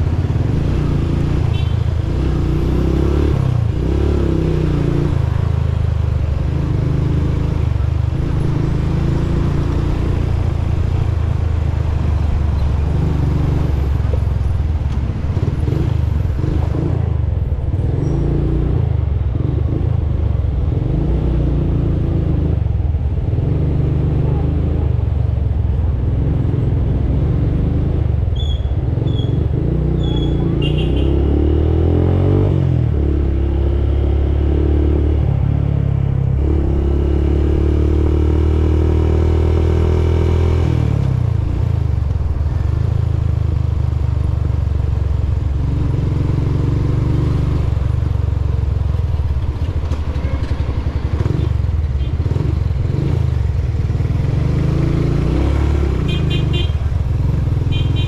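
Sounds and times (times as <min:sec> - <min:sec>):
motorcycle engine running: 0:39.6 - 0:58.0.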